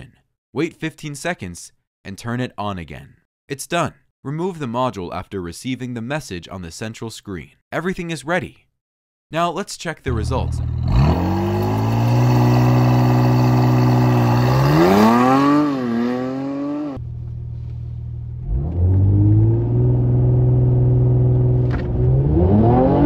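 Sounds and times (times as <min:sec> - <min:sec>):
car engine revving: 0:10.1 - 0:17.2, 0:18.3 - 0:23.0.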